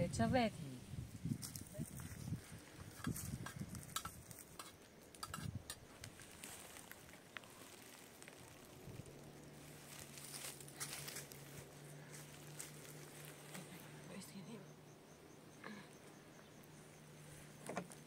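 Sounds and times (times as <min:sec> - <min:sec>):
faint low hum: 0:06.5 - 0:18.0.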